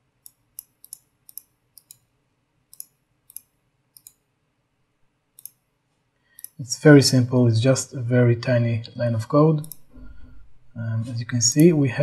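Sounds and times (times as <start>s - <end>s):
computer mouse buttons clicking: 0.2s - 2.1s, 2.7s - 4.2s, 5.4s - 5.6s, 6.4s - 6.6s, 9.6s - 10.0s, 11.5s - 11.8s.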